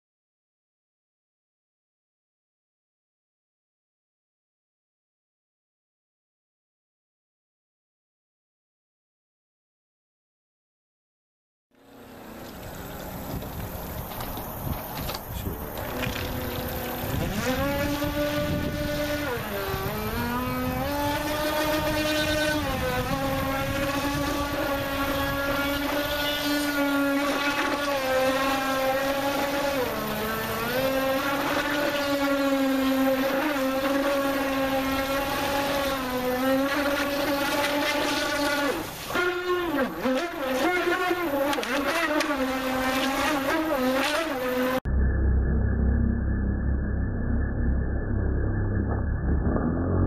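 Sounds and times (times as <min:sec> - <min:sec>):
electric motor whining: 0:11.8 - 0:48.9.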